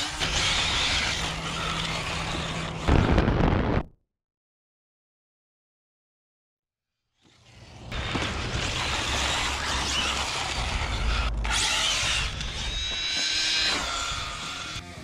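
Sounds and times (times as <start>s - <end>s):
electric motor and gears whining: 0.0s - 3.8s, 7.2s - 15.0s.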